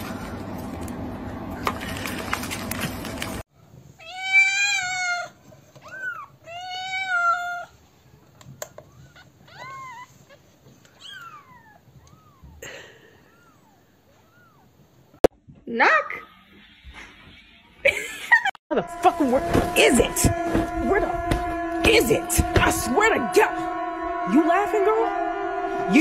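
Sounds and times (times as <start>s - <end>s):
cat meowing: 4.0s - 7.8s, 9.0s - 12.6s.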